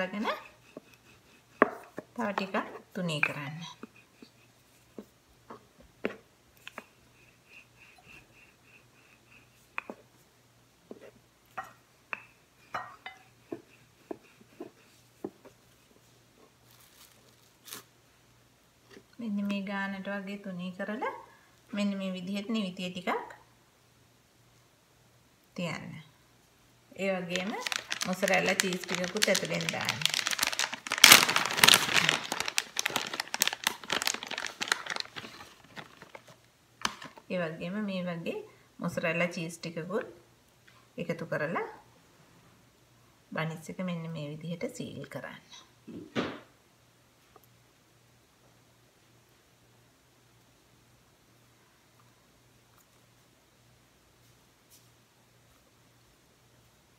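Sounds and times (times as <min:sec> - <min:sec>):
plastic bag crinkling: 0:16.6 - 0:17.9, 0:27.2 - 0:37.2.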